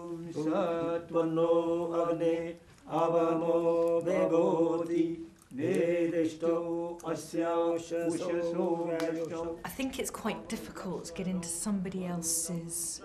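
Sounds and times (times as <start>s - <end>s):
person chanting mantras: 0.0s - 9.6s.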